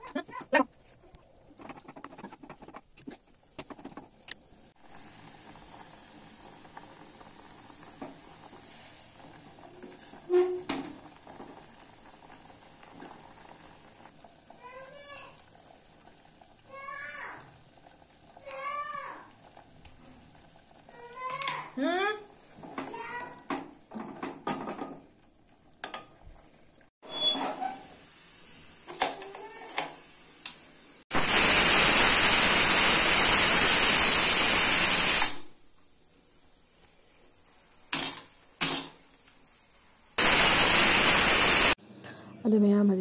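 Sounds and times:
pot boiling and bubbling: 0.0 - 41.8.

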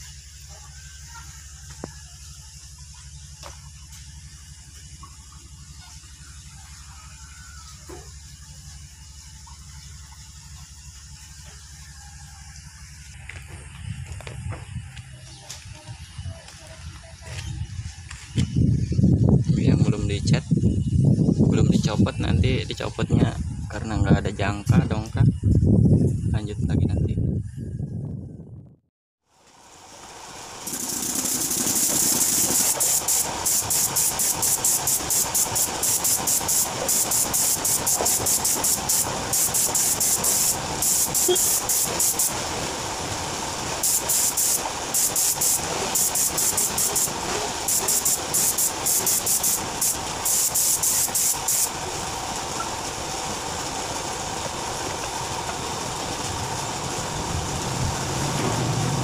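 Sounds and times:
spray gun hissing bursts: 29.8 - 58.4.

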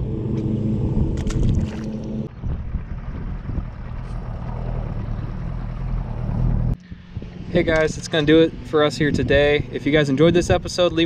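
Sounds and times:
motor hum: 0.0 - 11.0
wind buffeting microphone: 0.0 - 11.0.

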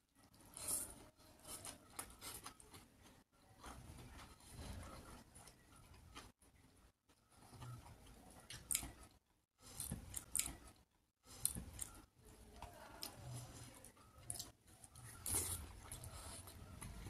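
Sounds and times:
chewing with wet mouth clicks: 7.4 - 17.0.

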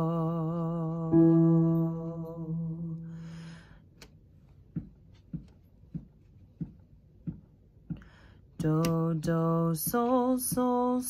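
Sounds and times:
woman singing held note: 1.1 - 3.4
soft even taps: 4.7 - 8.1.

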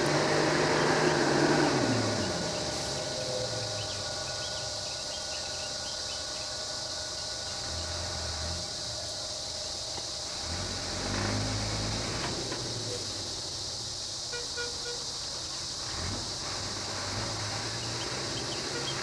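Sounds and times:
low engine sound: 0.0 - 14.3
bus engine idling: 0.0 - 19.0
insects droning: 0.0 - 19.0.

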